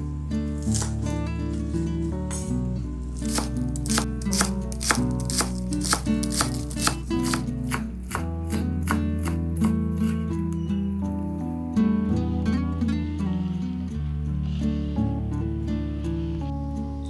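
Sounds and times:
background music: 0.0 - 17.0
knife chopping on cutting board: 0.6 - 1.0, 3.2 - 10.2.

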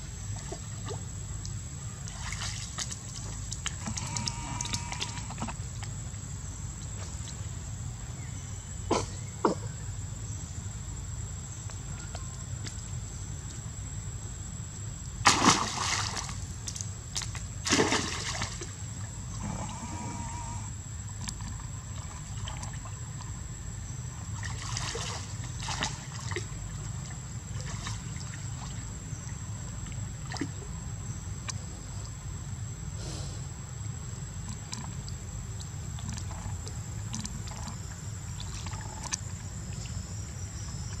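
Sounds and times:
small splashes and sloshing water: 0.3 - 6.0, 15.2 - 19.4, 21.1 - 23.4, 24.2 - 32.2, 34.3 - 41.0
loud splashes into water: 15.2 - 16.4, 17.6 - 18.6.

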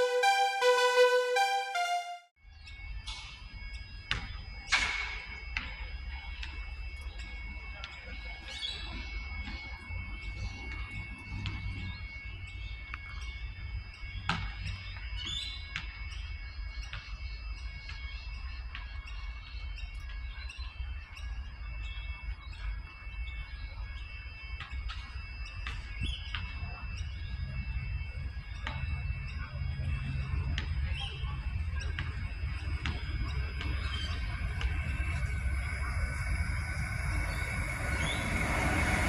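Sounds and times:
electric train rumble: 27.0 - 39.0.

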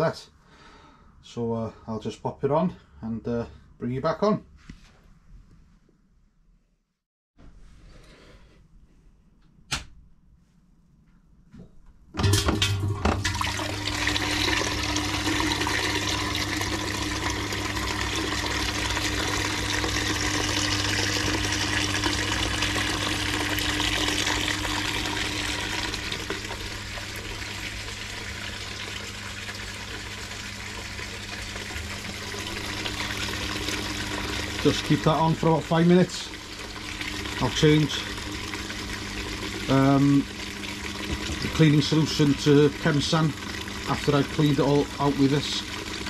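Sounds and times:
low pump hum: 12.2 - 46.0
water spraying inside keg: 12.2 - 46.0.

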